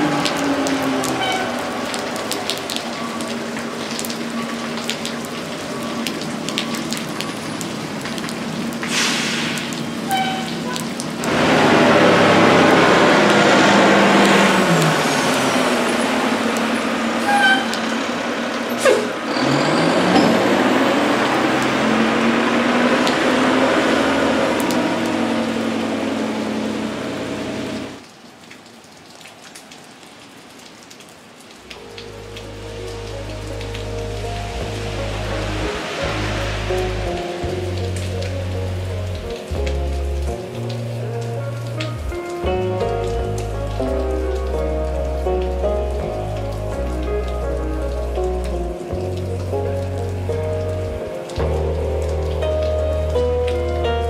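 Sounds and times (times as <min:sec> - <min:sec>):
tyres hissing through water: 0:00.0 - 0:28.0, 0:31.8 - 0:54.0
rain on a flooded street: 0:00.0 - 0:54.0
vehicle engine running: 0:20.0 - 0:28.0.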